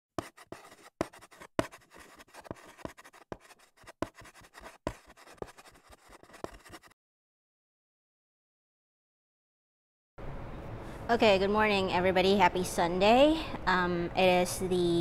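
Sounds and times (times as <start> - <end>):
chalk scratching on blackboard: 0.2 - 7.0.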